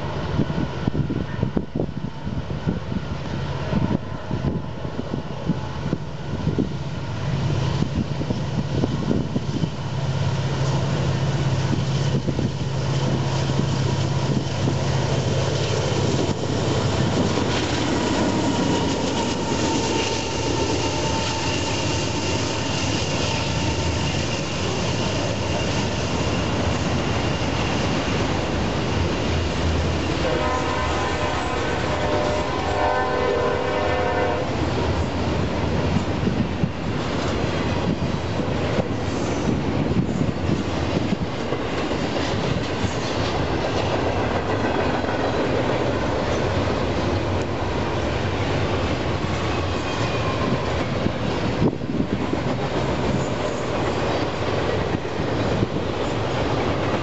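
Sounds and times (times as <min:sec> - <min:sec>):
diesel locomotive engine drone: 0:00.0 - 0:57.0
rail cars rolling: 0:00.0 - 0:57.0.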